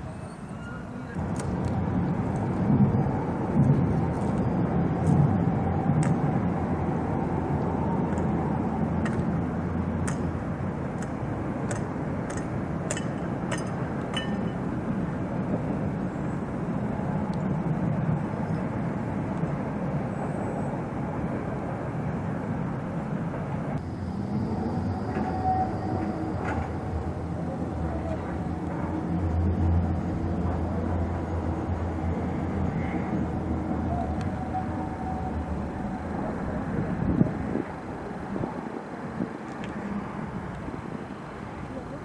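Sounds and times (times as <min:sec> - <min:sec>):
tram running gear rumble: 0:00.0 - 0:42.0
wheels clicking over track: 0:25.1 - 0:29.3.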